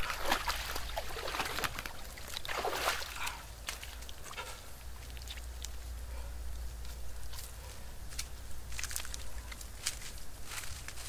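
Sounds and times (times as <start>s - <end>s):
water streaming off body: 0.0s - 4.5s
water splashing and sloshing: 0.0s - 5.9s.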